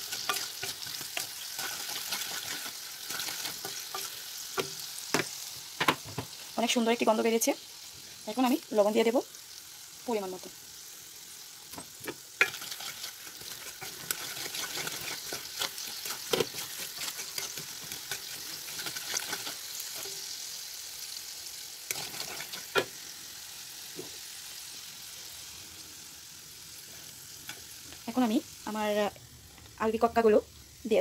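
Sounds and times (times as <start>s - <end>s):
oil and syrup sizzling in a pan: 0.0s - 31.0s
wooden spatula stirring: 12.4s - 20.1s.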